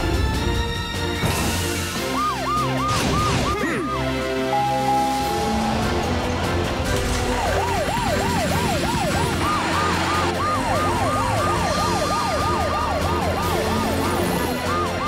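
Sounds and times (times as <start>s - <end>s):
cartoon sirens wailing: 2.0s - 6.1s, 7.2s - 15.0s.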